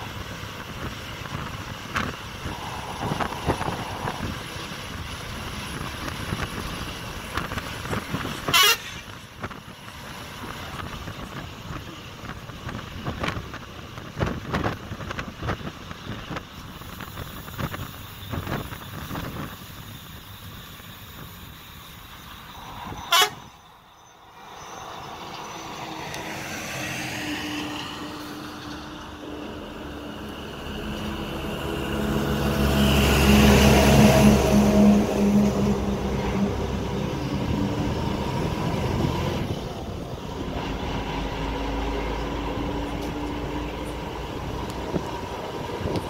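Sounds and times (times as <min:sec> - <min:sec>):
bus running: 0:00.0 - 0:46.0
air rushing past window: 0:00.7 - 0:08.5
bus horn blast: 0:08.4 - 0:09.2, 0:23.0 - 0:23.6.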